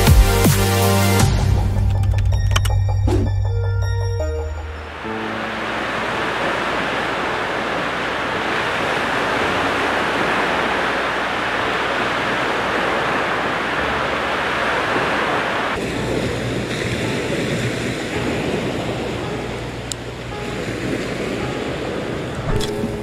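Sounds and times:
surf on beach: 4.6 - 23.0
wind on microphone: 5.8 - 19.8.

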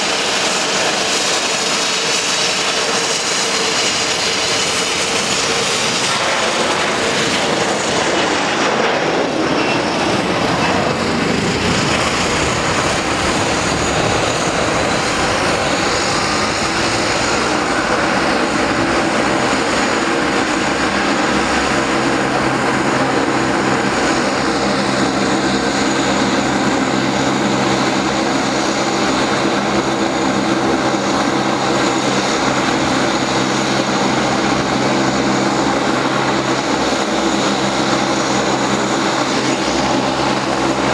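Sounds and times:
jet engines roaring at takeoff: 0.0 - 40.9
turboprop drone: 0.0 - 40.9.

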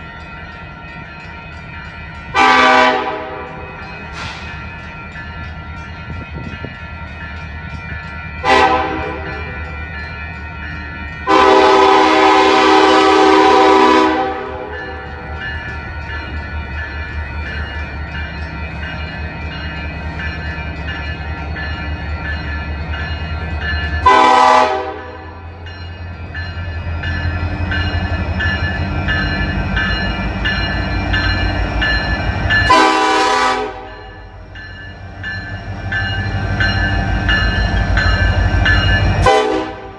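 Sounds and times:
locomotive air horn blasts: 2.4 - 3.6, 8.4 - 9.4, 11.3 - 14.8, 24.0 - 25.3, 32.7 - 34.0, 39.2 - 39.9.

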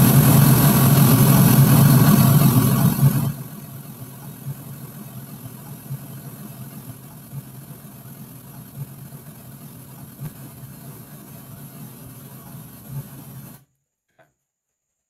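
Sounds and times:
pink noise hiss from loudspeaker: 2.1 - 13.6.

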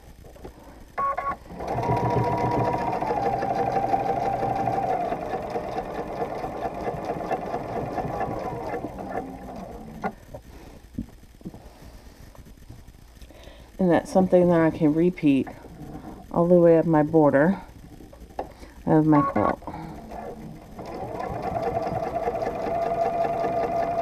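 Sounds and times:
sewing machine stitching: 1.5 - 10.2, 19.3 - 24.0.

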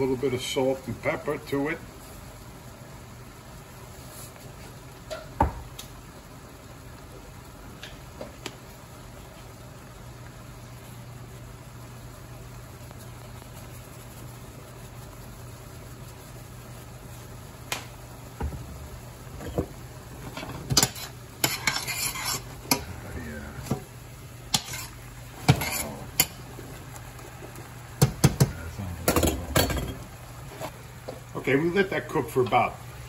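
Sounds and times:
steady low hum: 0.0 - 33.0
spatula scraping a metal pan: 20.3 - 22.9, 24.5 - 26.4.

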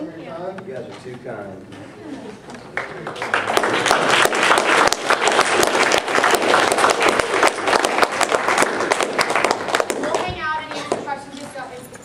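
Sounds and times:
crowd applauding: 2.7 - 10.3.

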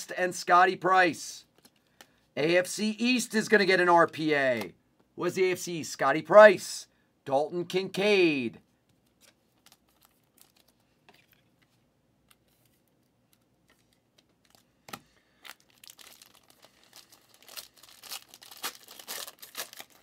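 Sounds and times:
foil wrapper crinkling and tearing: 9.5 - 11.5, 15.4 - 20.0.

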